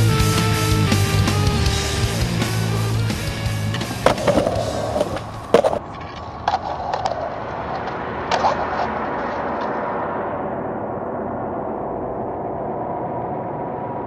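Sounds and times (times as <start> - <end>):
skateboard wheels rolling on concrete: 0.1 - 9.9
skateboard clacking on ground: 3.8 - 7.4.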